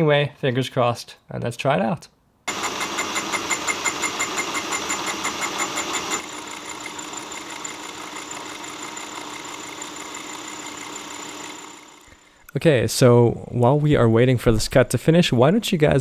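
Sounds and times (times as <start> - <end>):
fly cutter ticking: 2.5 - 12.2
milling machine humming: 2.5 - 12.3
machine whine: 2.5 - 12.5.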